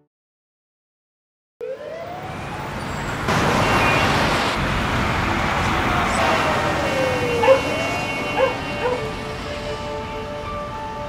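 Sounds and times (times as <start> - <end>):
siren wailing: 1.6 - 10.3
dense street traffic: 1.6 - 11.0.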